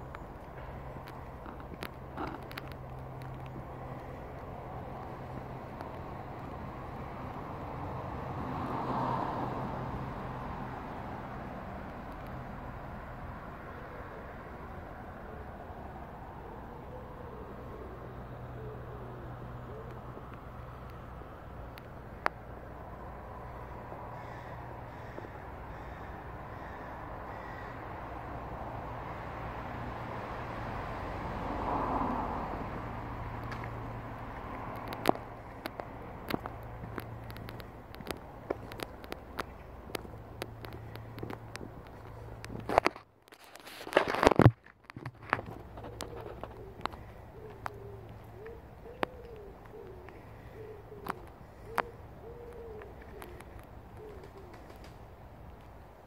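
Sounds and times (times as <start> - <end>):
low outdoor rumble: 0.0 - 56.0
pigeon cooing: 1.4 - 2.7, 15.1 - 20.8, 45.4 - 55.0
crow cawing faintly: 23.0 - 28.6, 34.5 - 42.8, 45.8 - 54.9
sharp clicks: 34.6 - 43.6.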